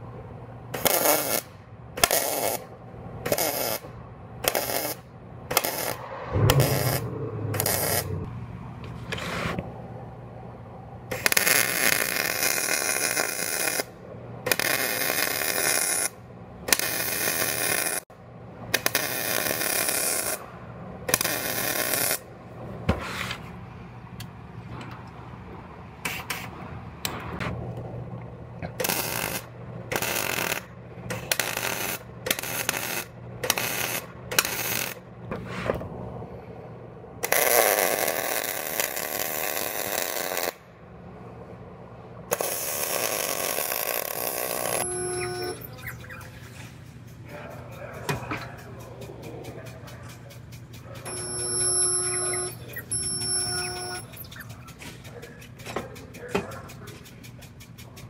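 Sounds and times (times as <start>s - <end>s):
steady low hum: 2.6s - 11.2s, 44.6s - 58.0s.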